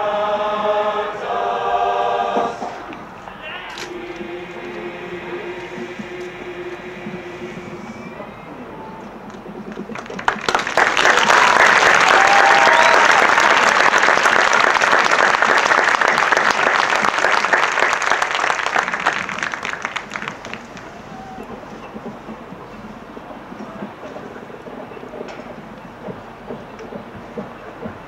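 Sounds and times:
people shouting: 2.5 - 5.6, 11.3 - 13.6
crowd applauding: 7.9 - 22.6.

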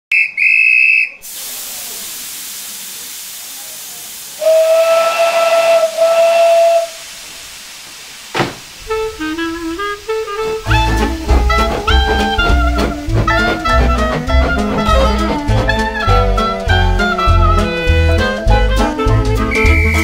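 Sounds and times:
guard's whistle blast: 0.1 - 1.2, 19.5 - 20.0
steam locomotive whistle: 0.1 - 1.3, 4.1 - 7.2, 8.8 - 20.0
steam hissing: 1.2 - 18.0
knock: 8.3 - 8.6.

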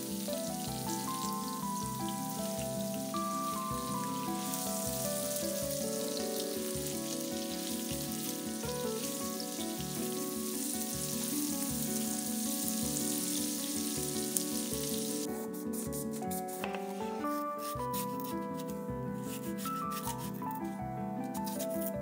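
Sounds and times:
potatoes sizzling in a pan: 0.0 - 15.3
spatula turning food: 0.0 - 20.6
soft background music: 0.0 - 22.0.

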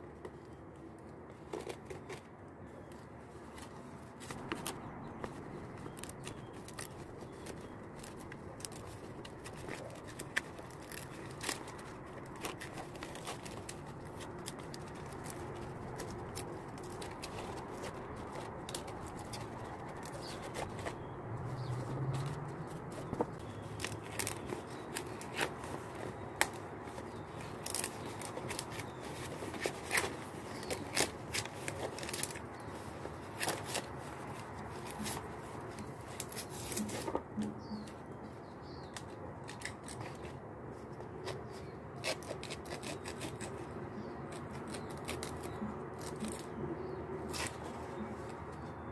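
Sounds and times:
leaves rustling and crackling: 1.4 - 37.9.

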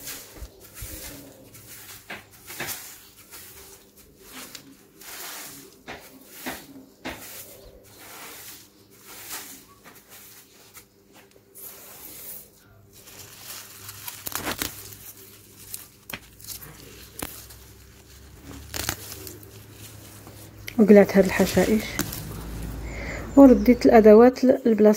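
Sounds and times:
broom sweeping concrete: 0.0 - 16.0, 16.6 - 22.8
roots ripping out of soil: 11.6 - 22.8.

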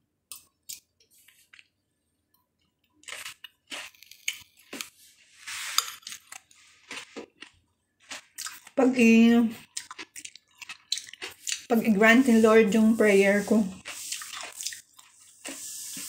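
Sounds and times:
wet crunchy chewing: 3.0 - 5.0, 5.6 - 8.8, 9.5 - 11.7, 13.8 - 16.0.

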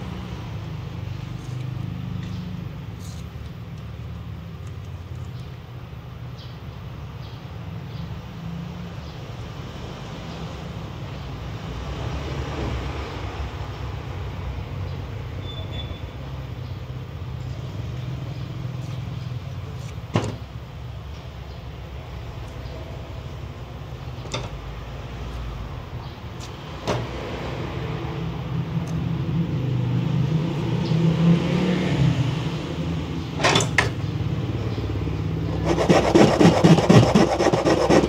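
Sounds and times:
objects handled on a workbench: 19.8 - 20.5, 24.2 - 24.6.

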